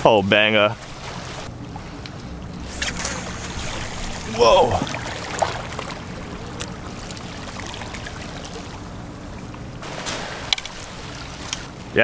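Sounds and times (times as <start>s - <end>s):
waves lapping on rocks: 0.5s - 12.0s
low rumble: 1.4s - 9.8s.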